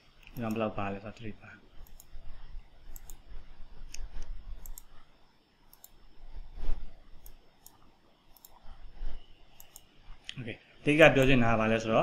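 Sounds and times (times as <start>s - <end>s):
computer mouse clicking: 0.2s - 0.7s, 1.8s - 2.2s, 2.9s - 5.0s, 5.7s - 6.1s, 7.1s - 8.7s, 9.5s - 10.4s, 11.2s - 11.4s.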